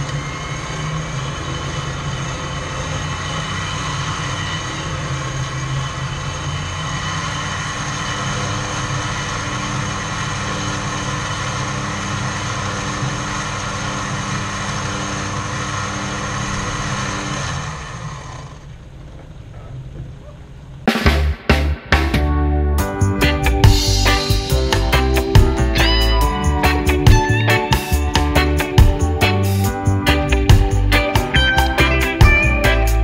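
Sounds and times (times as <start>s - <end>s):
winch mechanical whine: 0.0s - 20.9s
engine running: 0.0s - 33.0s.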